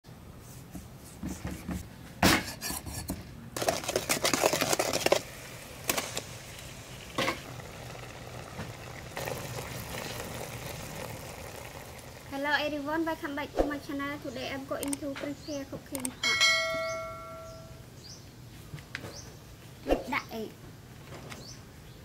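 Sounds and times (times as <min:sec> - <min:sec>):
food simmering hiss: 0:03.6 - 0:15.6.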